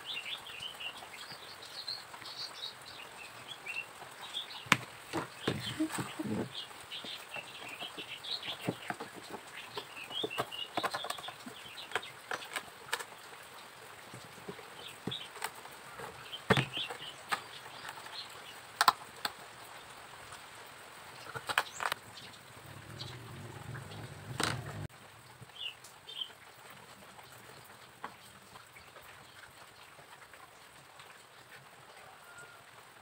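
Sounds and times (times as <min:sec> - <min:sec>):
small birds chirping: 0:00.0 - 0:19.0, 0:21.2 - 0:24.9
wooden pieces knocking on table: 0:04.7 - 0:06.5.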